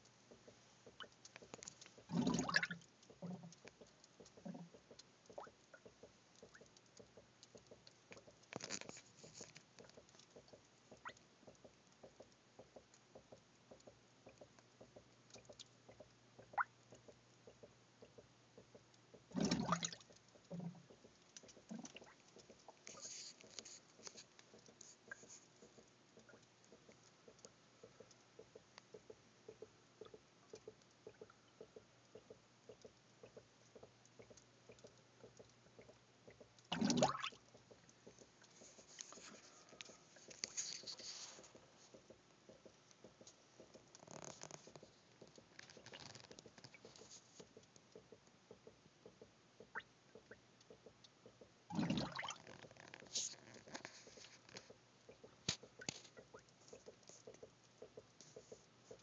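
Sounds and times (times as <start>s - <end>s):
gas bubbling in liquid: 2.0s - 3.6s, 19.3s - 20.9s, 36.7s - 37.4s, 51.7s - 52.4s
liquid gurgles: 2.1s - 3.6s, 19.3s - 20.8s, 36.7s - 37.4s, 51.7s - 52.6s.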